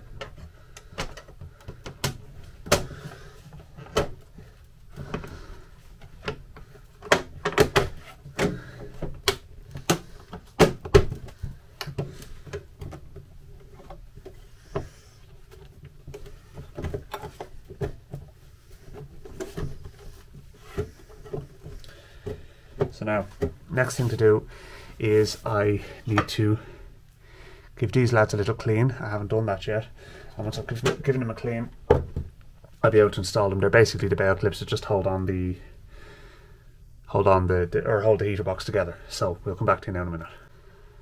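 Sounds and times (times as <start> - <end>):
clicks and knocks of parts handled: 0.1 - 2.9, 6.0 - 23.6.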